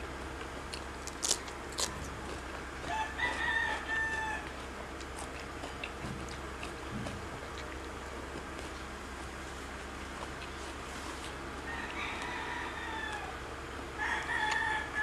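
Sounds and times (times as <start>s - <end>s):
steady low hum: 0.0s - 15.0s
rooster crowing: 2.8s - 4.7s, 11.6s - 15.0s.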